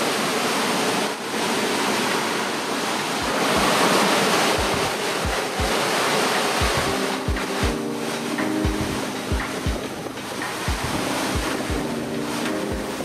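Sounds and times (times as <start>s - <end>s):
waves breaking: 0.0s - 13.0s
wind and rain: 0.0s - 13.0s.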